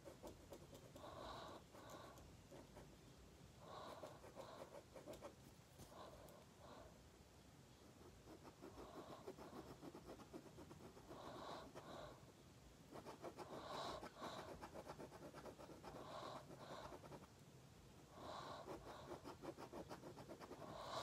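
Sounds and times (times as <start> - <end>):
pen scratching on paper: 0.0 - 3.0, 3.7 - 5.4, 7.9 - 12.2, 12.9 - 17.3, 18.3 - 21.0
soft breaths: 0.0 - 9.8, 10.7 - 17.4, 18.0 - 21.0.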